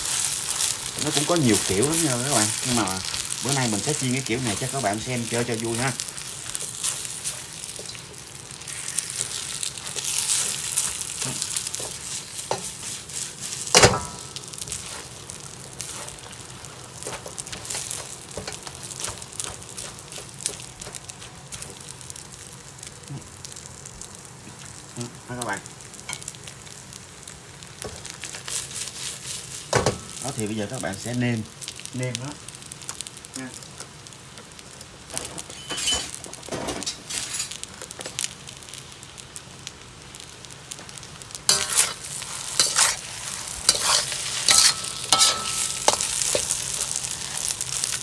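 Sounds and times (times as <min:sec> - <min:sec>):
rice and egg sizzling in wok: 0:00.0 - 0:48.0
spatula scraping pan: 0:08.7 - 0:15.1, 0:36.8 - 0:37.6, 0:41.5 - 0:47.6.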